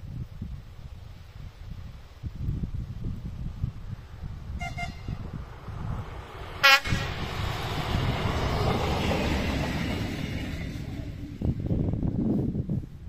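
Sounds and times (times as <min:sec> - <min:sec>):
railcar rumbling past: 0:04.5 - 0:12.7
train horn blasts: 0:04.6 - 0:05.2, 0:06.6 - 0:07.3.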